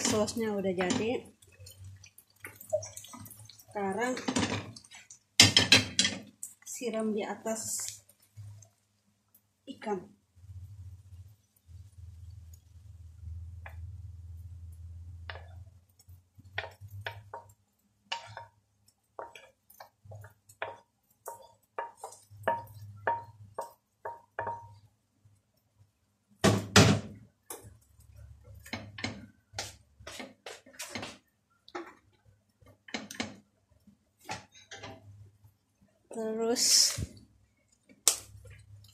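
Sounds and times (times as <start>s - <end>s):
wooden spatula scraping frying pan: 18.1s - 24.7s, 28.4s - 32.0s, 34.2s - 35.1s.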